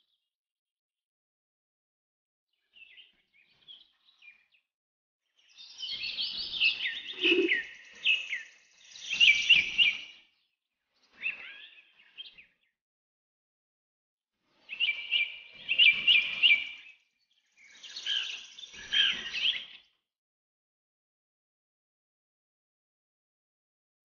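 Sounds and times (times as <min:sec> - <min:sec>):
small birds chirping: 0:05.4 - 0:12.8, 0:14.6 - 0:20.0.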